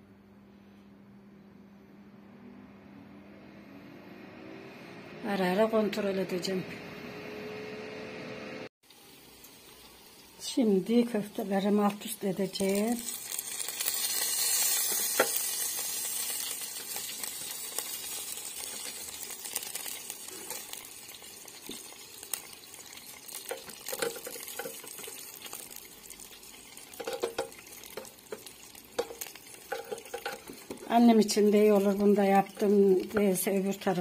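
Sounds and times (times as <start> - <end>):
meatballs sizzling: 8.8 - 34.0
tongs clicking and scraping mesh: 16.8 - 30.8.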